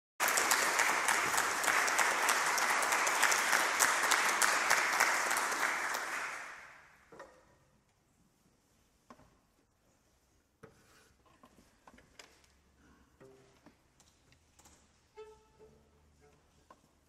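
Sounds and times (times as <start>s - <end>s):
audience applauding: 0.2s - 6.9s.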